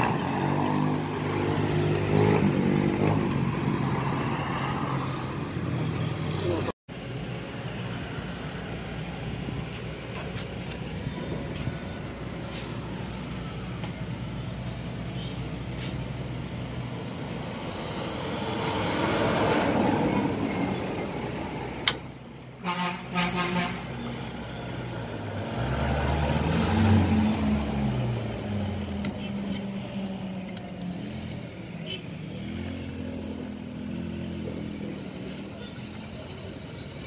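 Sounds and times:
road traffic passing: 0.0 - 37.0
vehicle horn tooting: 22.6 - 24.2.

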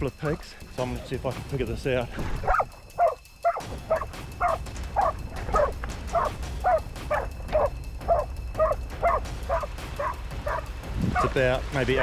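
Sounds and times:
dog barking: 2.4 - 11.4.

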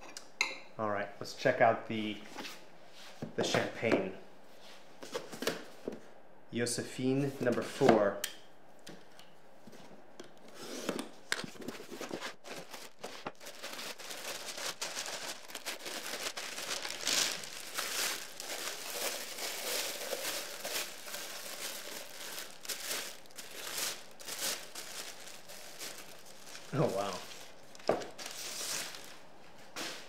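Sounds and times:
wrapping paper crinkling: 11.5 - 29.2.

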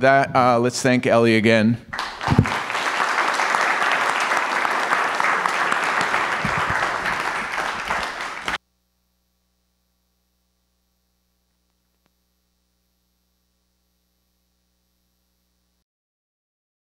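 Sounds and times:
audience applauding: 1.9 - 8.6.

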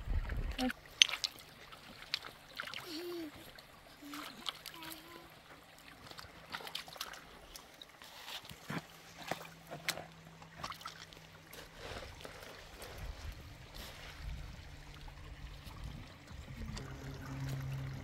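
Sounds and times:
water trickling and gurgling: 0.0 - 18.0
low rumble: 13.0 - 18.0.

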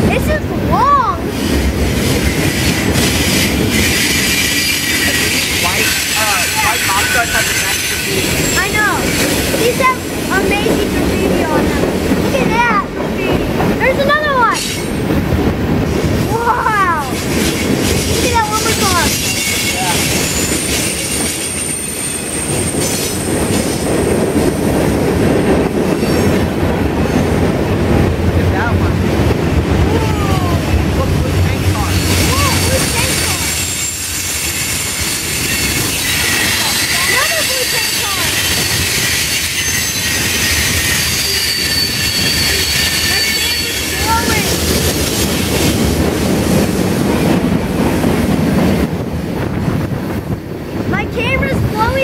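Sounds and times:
freight train rumbling over rails: 0.0 - 52.0
high wheel squeal: 1.3 - 10.2, 14.4 - 15.0, 17.0 - 24.6, 31.7 - 45.8.

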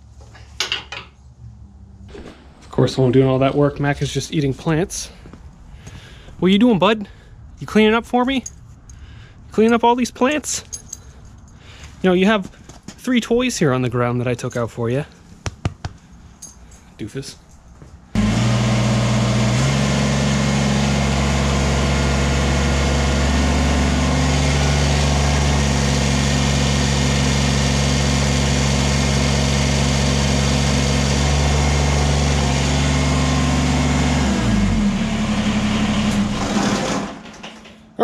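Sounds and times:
tractor diesel engine running: 18.2 - 37.5.

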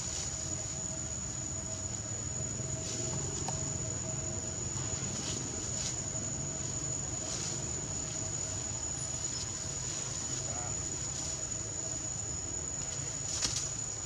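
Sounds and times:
high-pitched insect drone: 0.0 - 14.0
low steady rumble: 0.0 - 14.0
faint rustles: 4.8 - 11.6.

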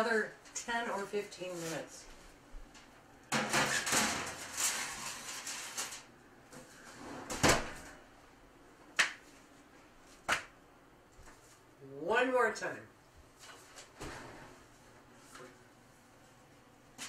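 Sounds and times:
foil rustling: 3.4 - 6.2
oven door shutting: 7.0 - 8.0.

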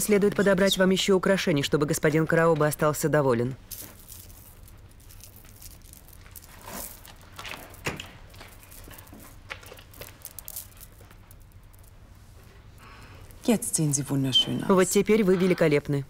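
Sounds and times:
low room hum: 0.0 - 16.0
clothing rustling: 3.6 - 13.4
jewellery clicking: 3.7 - 12.0.

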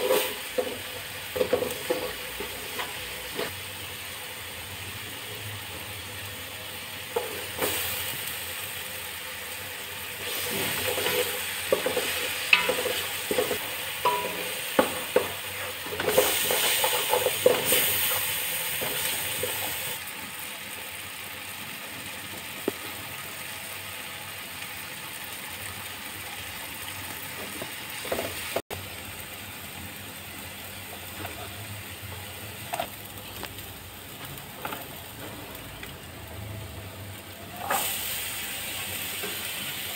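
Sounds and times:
wooden spatula scraping a pot: 0.0 - 3.6, 10.2 - 18.2
food sizzling in a pot: 0.0 - 39.9.

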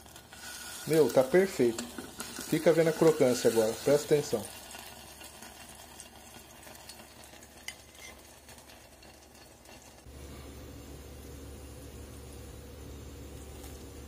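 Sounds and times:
hot oil sizzling: 0.0 - 14.0
low steady hum: 10.0 - 14.0.

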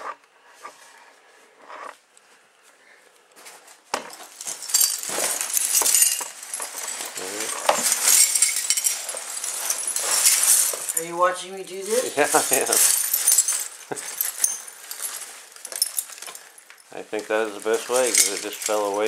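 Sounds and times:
plastic sheeting crinkling: 3.4 - 19.0
broken glass clinking: 4.0 - 19.0.

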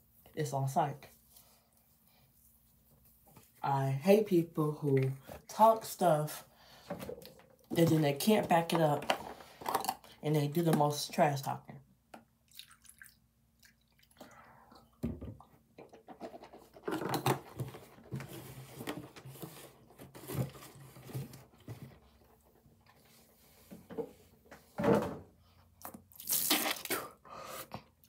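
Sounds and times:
liquid pouring into bottle cap: 12.5 - 14.1
person spitting: 25.9 - 27.9.

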